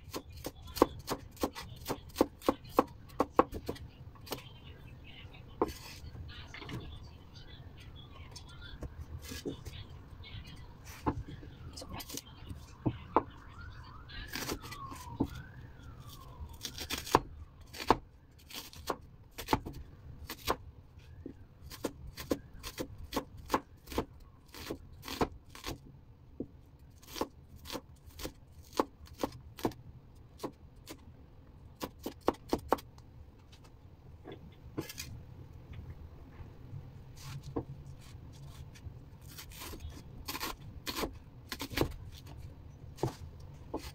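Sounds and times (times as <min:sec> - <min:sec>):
faint wailing tone: 0:04.0 - 0:17.7
knife chopping on cutting board: 0:43.0 - 0:43.9.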